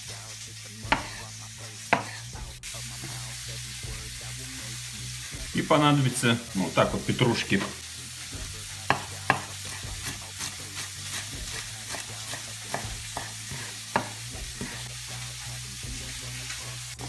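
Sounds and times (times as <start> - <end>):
knife chopping on wooden board: 0.9 - 1.2, 1.9 - 2.2, 8.8 - 10.5, 11.1 - 14.8.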